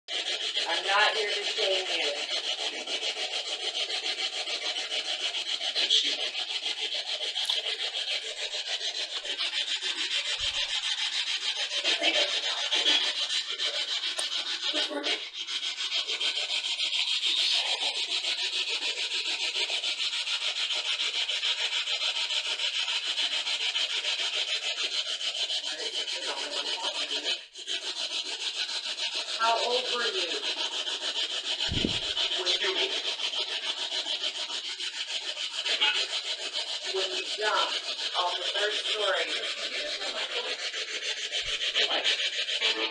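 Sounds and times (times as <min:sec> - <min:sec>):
pulsing scratchy hiss: 0:00.6 - 0:15.3, 0:29.4 - 0:30.5, 0:31.6 - 0:34.4, 0:35.4 - 0:42.9
louder scrapes or knocks: 0:07.3 - 0:13.4, 0:31.6 - 0:32.7.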